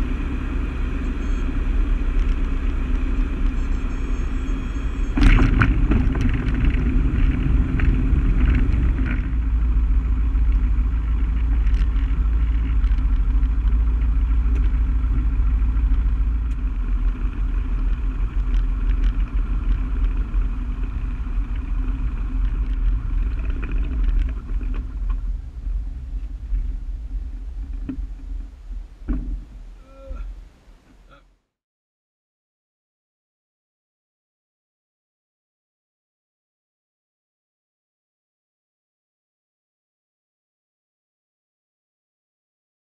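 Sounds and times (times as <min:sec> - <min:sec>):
light aircraft engine rumble: 0:00.0 - 0:31.3.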